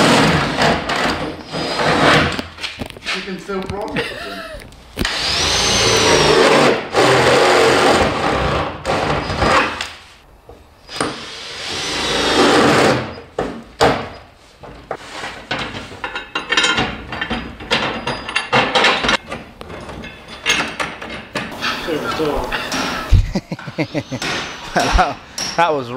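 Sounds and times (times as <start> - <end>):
cordless drill boring through steel: 5.0 - 8.4.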